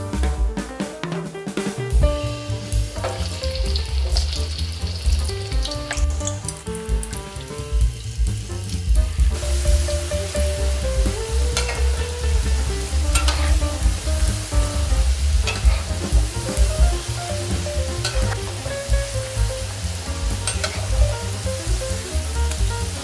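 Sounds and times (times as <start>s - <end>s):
potatoes sizzling in hot oil: 2.3s - 23.0s
metal spatula stirring: 13.2s - 13.6s, 15.4s - 16.0s, 20.4s - 20.9s.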